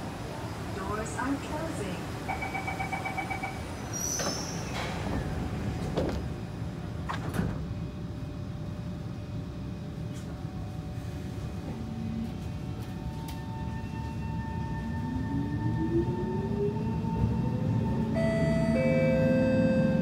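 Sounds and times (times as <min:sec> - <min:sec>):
train doors sliding shut: 0:03.7 - 0:07.8.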